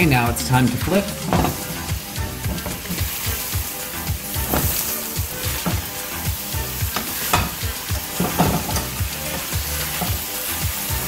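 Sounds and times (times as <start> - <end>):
sandwiches sizzling in a skillet: 0.9 - 11.0
spatula scraping a pan: 1.1 - 11.0.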